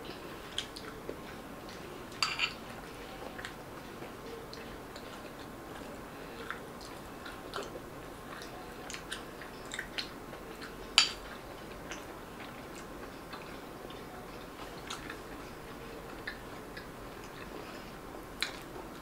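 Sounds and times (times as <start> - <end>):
chewing: 0.1 - 1.9, 2.7 - 19.0
spoon clinking on ceramic bowl: 2.2 - 2.6.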